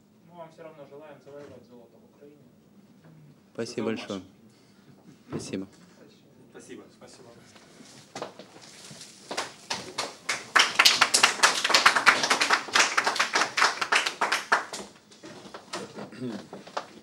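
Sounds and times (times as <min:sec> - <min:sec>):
people clapping: 0:09.3 - 0:15.2.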